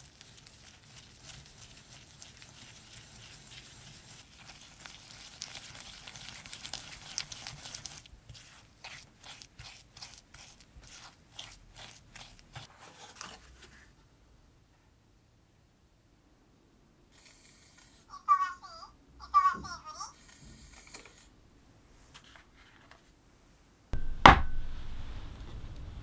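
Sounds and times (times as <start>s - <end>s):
whisk scraping in glass bowl: 0.2s - 12.7s.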